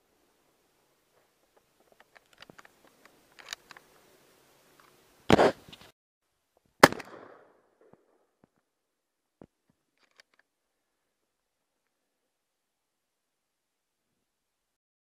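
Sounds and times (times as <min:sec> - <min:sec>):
handling clicks and rustles: 0:01.1 - 0:04.1
shotgun shots: 0:06.8 - 0:08.0.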